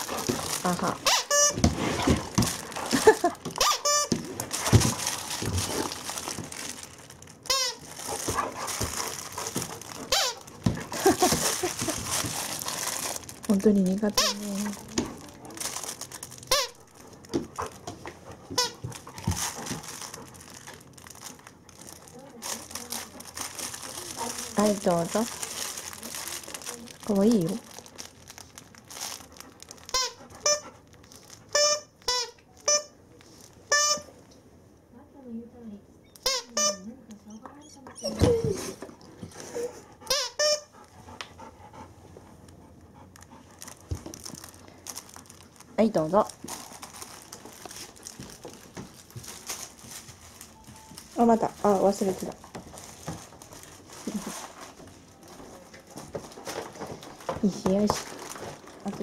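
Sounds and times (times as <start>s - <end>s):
plush toy rustling and crinkling: 0.0s - 34.2s, 41.7s - 59.0s
toy squeak: 7.5s - 7.8s, 31.5s - 32.9s, 33.7s - 34.1s, 36.1s - 36.9s, 40.1s - 40.7s
dog whining: 36.0s - 40.7s.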